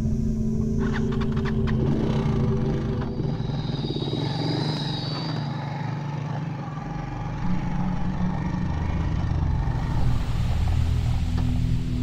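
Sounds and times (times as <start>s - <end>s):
small motorcycle engines running: 0.7s - 12.0s.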